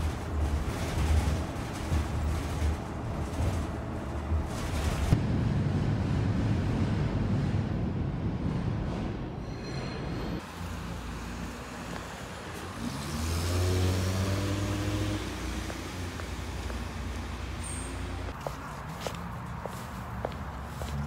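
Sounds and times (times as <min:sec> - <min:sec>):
tyres hissing on wet road: 0:10.5 - 0:18.3
car pulling away: 0:11.4 - 0:18.4.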